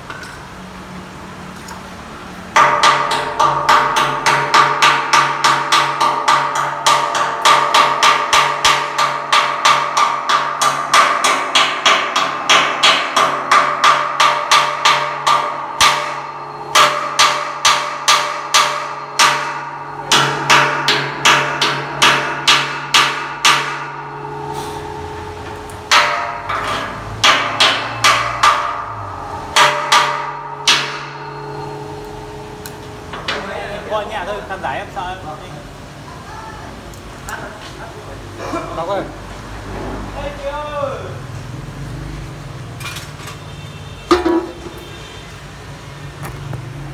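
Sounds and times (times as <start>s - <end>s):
hammer blows on steel pipe: 2.6s - 33.0s.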